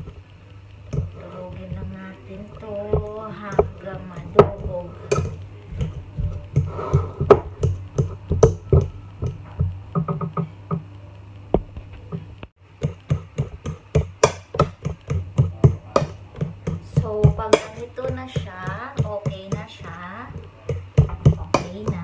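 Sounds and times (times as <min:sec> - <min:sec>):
fork tapping and scraping bowl: 0:02.5 - 0:10.4, 0:12.8 - 0:22.0.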